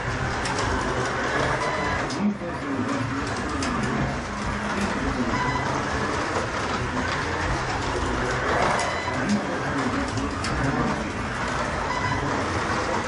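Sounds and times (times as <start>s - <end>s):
slot car motor running: 0.0s - 13.0s.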